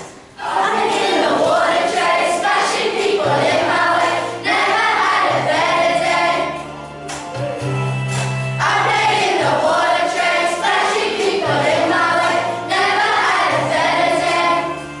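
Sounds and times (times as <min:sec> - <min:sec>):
children's choir singing: 0:00.0 - 0:06.8, 0:08.6 - 0:15.0
low accompaniment notes: 0:03.0 - 0:15.0.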